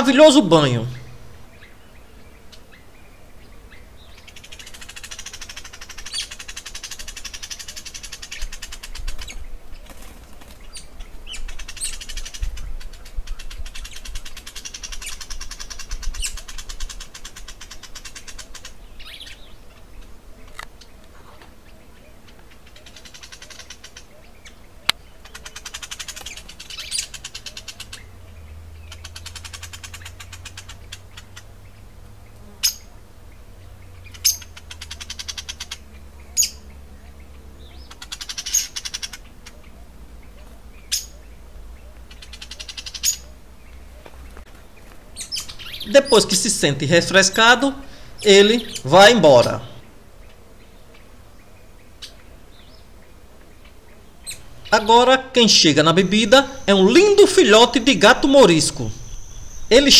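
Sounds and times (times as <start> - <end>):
rapid buzzing trills: 0.0 - 21.0, 45.2 - 59.9
birds chirping: 0.0 - 59.9.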